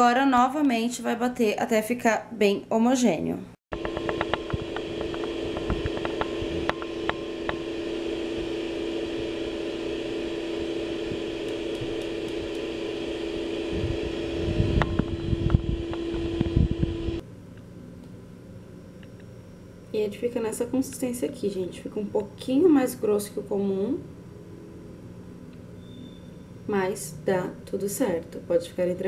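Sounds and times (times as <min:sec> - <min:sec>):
blender motor running: 0:03.8 - 0:17.2.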